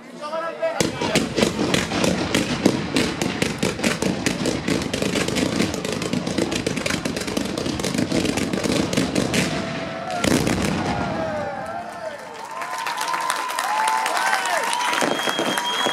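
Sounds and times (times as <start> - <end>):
fireworks bangs and crackling: 0.8 - 12.0, 14.6 - 15.9.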